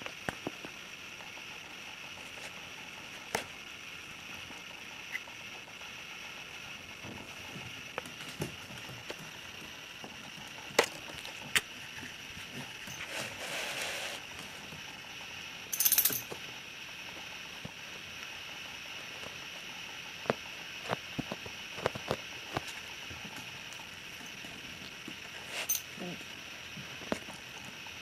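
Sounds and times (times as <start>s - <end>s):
rustling scrape: 12.6s - 14.3s.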